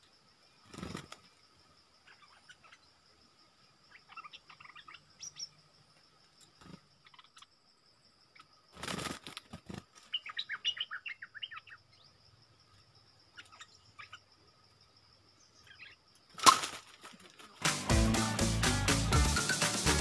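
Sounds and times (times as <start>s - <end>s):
birds chirping sharply: 10.0s - 12.1s.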